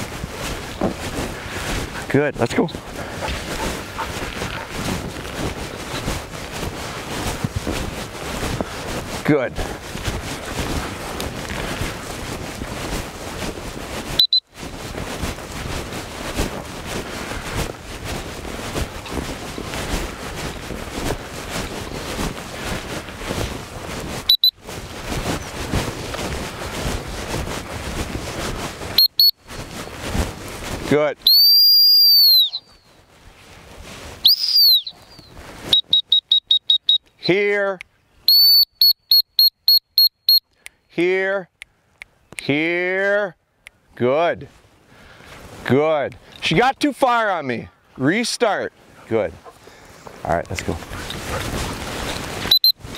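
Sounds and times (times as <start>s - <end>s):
wind buffeting microphone: 0.0s - 31.0s
footsteps swishing through grass: 0.0s - 31.3s, 32.3s - 37.0s, 44.5s - 47.0s, 48.7s - 52.9s
short high beeps: 14.2s - 14.6s, 24.3s - 24.6s, 29.0s - 29.5s, 35.7s - 37.0s, 38.3s - 40.4s, 52.5s - 52.9s
dog-training whistle blasts: 31.3s - 32.7s, 34.2s - 37.0s, 38.3s - 40.4s, 52.5s - 52.8s.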